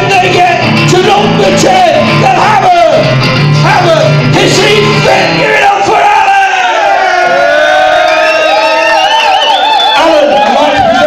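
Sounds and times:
man singing: 0.0s - 6.0s.

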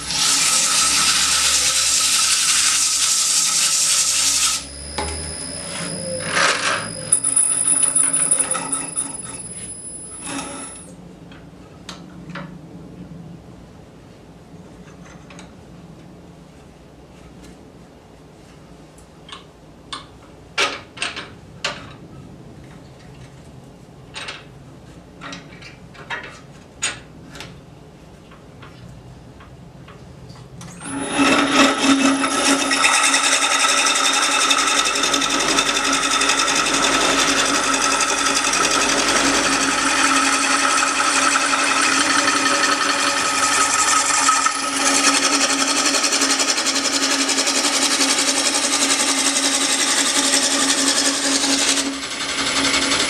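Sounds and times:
wood lathe running with high whine: 0.0s - 10.9s, 30.8s - 53.0s.

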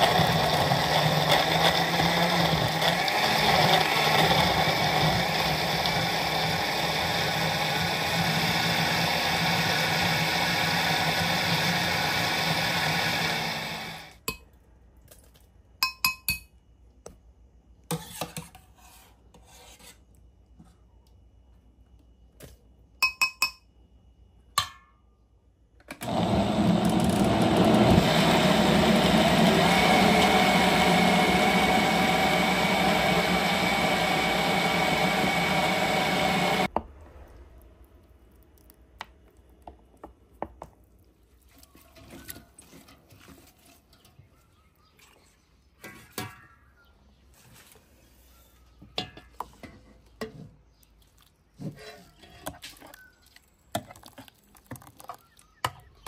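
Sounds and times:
blender running: 0.0s - 14.2s, 26.0s - 36.7s.

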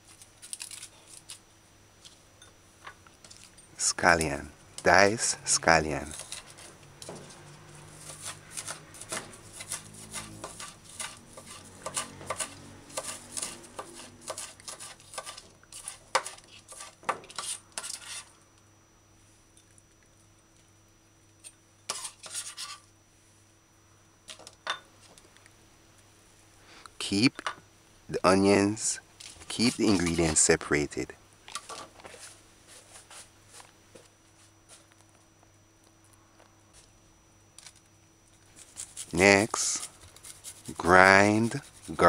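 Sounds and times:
knife chopping on cutting board: 8.1s - 17.5s.

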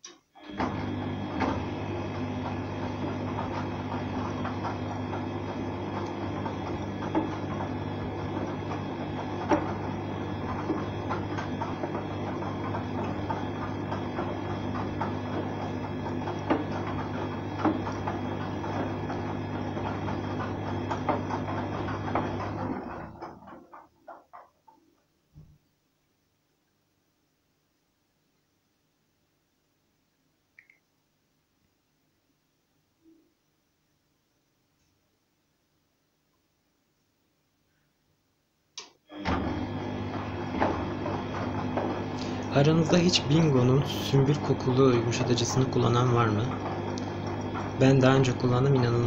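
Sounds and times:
washing machine motor hum: 0.0s - 25.8s, 38.7s - 49.0s
laundry knocking in drum: 6.4s - 24.5s.

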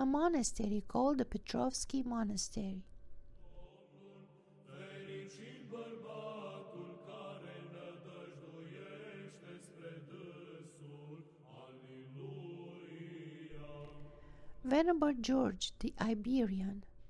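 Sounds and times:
voices chanting: 3.5s - 14.9s.

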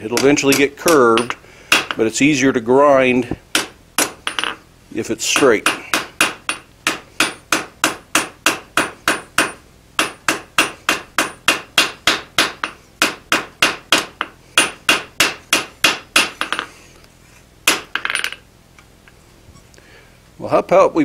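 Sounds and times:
hammer striking steel on anvil: 0.1s - 2.1s, 3.5s - 4.6s, 5.3s - 16.7s
hammer clattering onto anvil: 0.2s - 2.0s.

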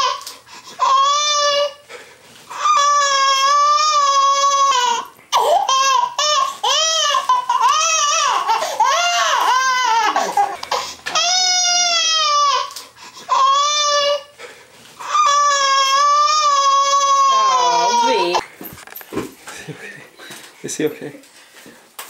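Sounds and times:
infant crying: 0.0s - 1.9s, 2.5s - 14.4s, 15.0s - 18.4s.

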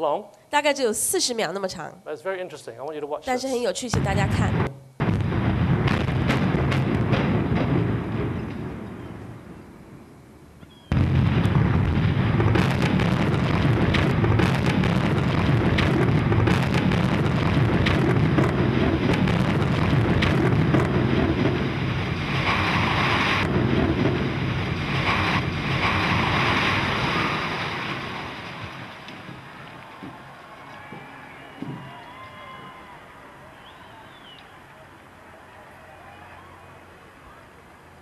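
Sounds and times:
debris cracking: 10.9s - 31.0s
rumble of falling concrete: 10.9s - 32.8s.

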